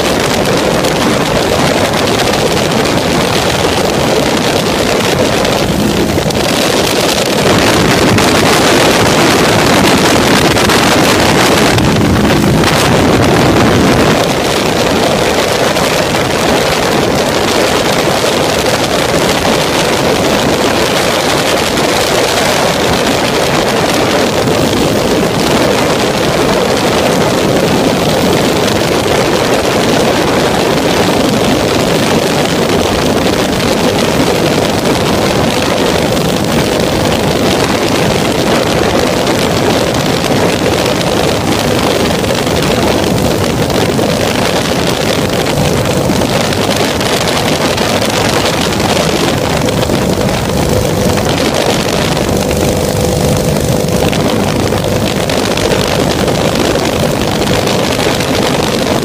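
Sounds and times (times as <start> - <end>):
aircraft engine drone: 0.0 - 59.0
wind on microphone: 0.0 - 59.0.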